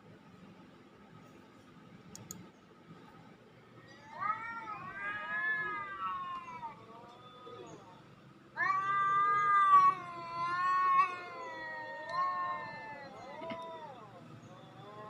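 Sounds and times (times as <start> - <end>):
cat meowing through laptop speakers: 8.6 - 14.2.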